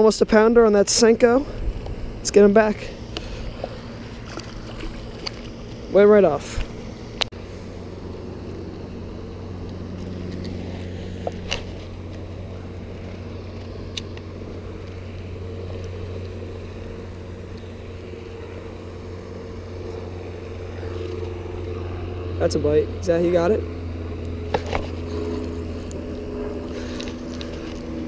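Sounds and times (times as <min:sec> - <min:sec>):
low motor hum: 0:00.0 - 0:28.0.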